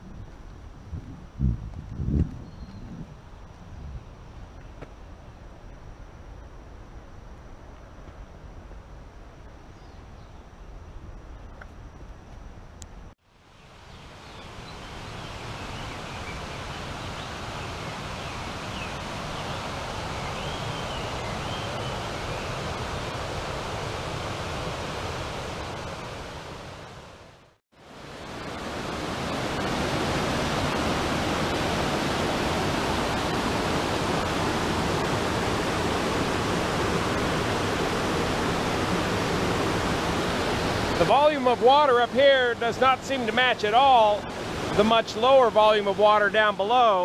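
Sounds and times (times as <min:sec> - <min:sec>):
stream rushing over rocks: 0:13.6 - 0:47.0.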